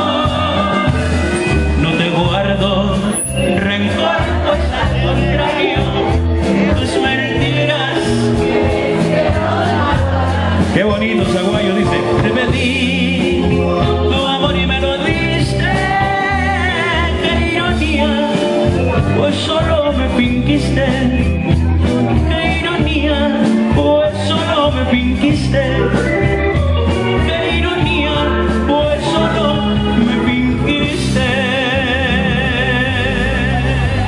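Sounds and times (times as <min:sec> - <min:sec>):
live band playing: 0:00.0 - 0:34.0
person singing: 0:00.0 - 0:34.0.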